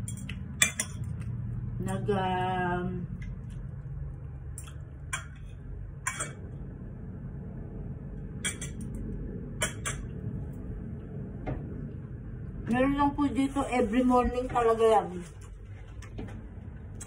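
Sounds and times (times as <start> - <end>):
low steady hum: 0.0 - 17.0
cutlery clinking on ceramic plates: 6.1 - 6.4.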